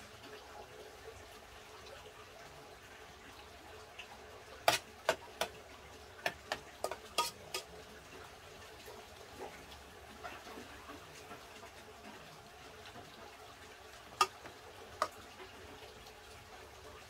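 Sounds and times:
utensil clinking against pot: 6.2 - 7.7, 14.2 - 15.2.

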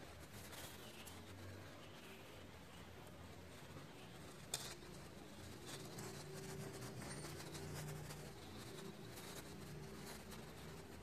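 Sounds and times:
paintbrush scratching on canvas: 3.4 - 11.0.

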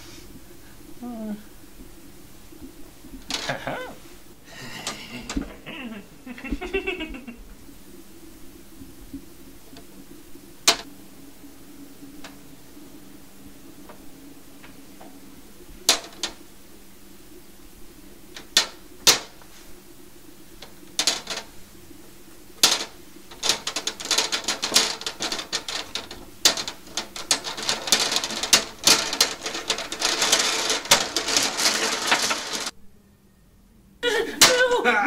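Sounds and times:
glass marbles clacking on plastic: 21.0 - 21.5, 22.6 - 32.7.

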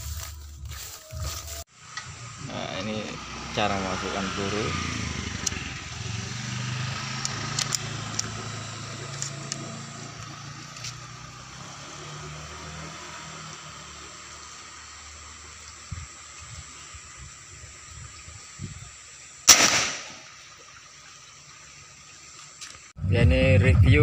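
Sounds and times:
low motor hum: 0.0 - 19.4
air rifle loading clicks: 7.2 - 8.3.

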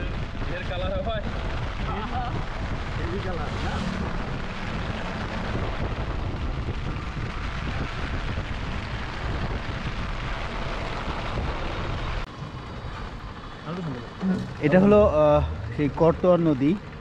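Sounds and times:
wind rumble on microphone: 0.0 - 13.5
wet road noise: 0.0 - 17.0.

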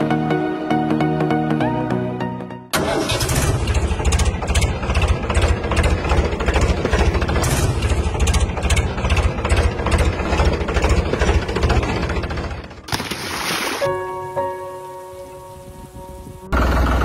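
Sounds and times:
diesel tractor engine chugging: 2.8 - 12.9, 16.2 - 17.0.

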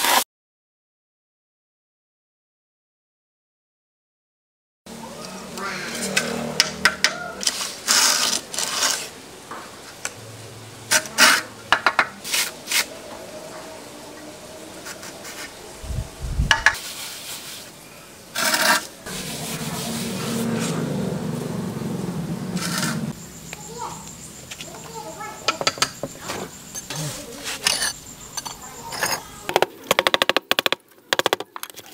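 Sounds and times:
trowel scraping and tapping cement: 18.4 - 18.9, 25.5 - 31.9
sponge float rubbing cement: 18.4 - 21.0.

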